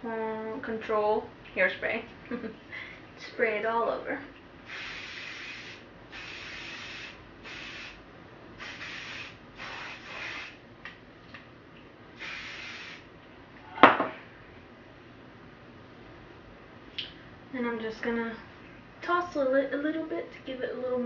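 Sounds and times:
aerosol hairspray hissing: 0:04.7 - 0:08.0, 0:08.6 - 0:10.6, 0:12.2 - 0:13.0
sharp knock: 0:13.8 - 0:14.2.

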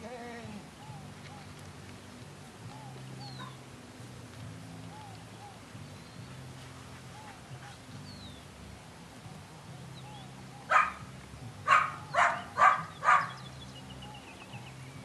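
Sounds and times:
puppy barking: 0:10.6 - 0:13.4.

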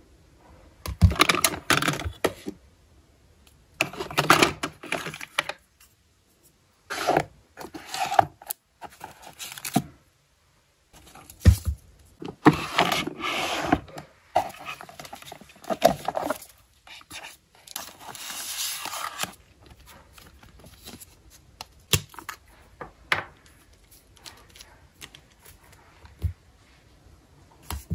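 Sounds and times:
plastic drawer scraping: 0:06.9 - 0:09.8, 0:12.2 - 0:16.5
paper sticker books rustling: 0:11.0 - 0:22.6, 0:23.5 - 0:26.3.

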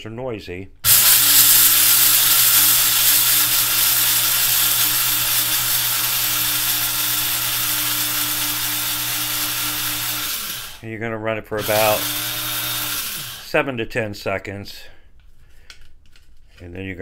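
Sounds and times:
blade grinder grinding rice: 0:00.8 - 0:10.8, 0:11.6 - 0:13.5.

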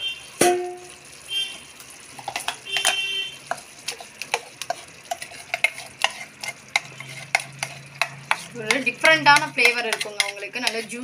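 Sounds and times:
metal spoon scraping metal jar: 0:04.7 - 0:11.0.

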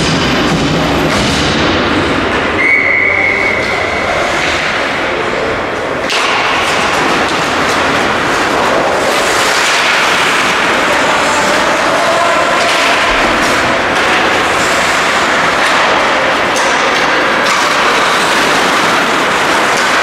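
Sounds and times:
skating rush on ice: 0:00.0 - 0:20.0
whistle blast: 0:02.6 - 0:04.1.

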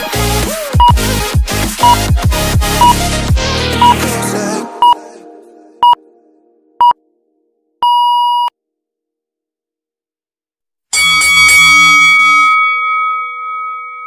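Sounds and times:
short electronic beeps: 0:07.8 - 0:08.5
loud ringing chime: 0:10.9 - 0:14.0.

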